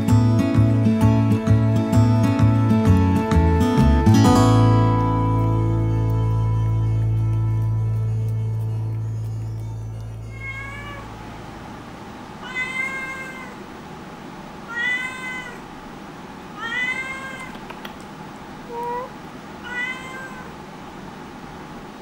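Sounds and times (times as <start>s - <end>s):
cat meowing: 10.2s - 11.1s, 12.4s - 13.6s, 14.7s - 15.7s, 16.6s - 17.7s, 18.7s - 20.6s.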